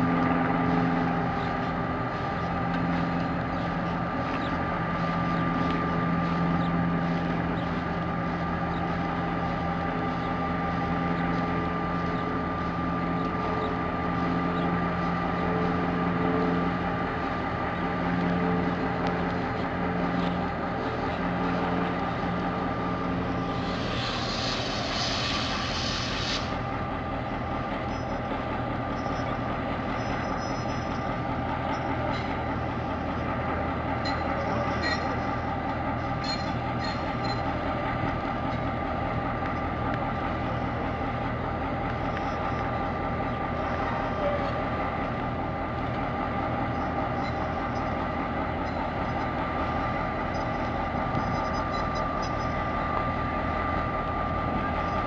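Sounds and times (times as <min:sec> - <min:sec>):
locomotive diesel engine running: 0:00.0 - 0:55.0
loud hiss: 0:23.4 - 0:26.7.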